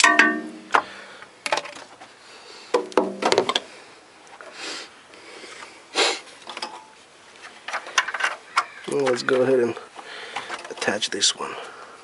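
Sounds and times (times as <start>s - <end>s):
short hissing: 4.5s - 5.0s, 5.9s - 6.3s.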